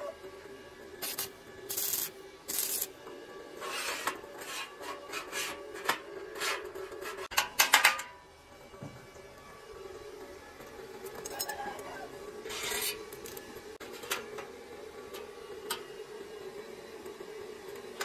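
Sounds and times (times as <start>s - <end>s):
steel strips scraping on steel frame: 1.0s - 8.1s, 11.1s - 14.3s.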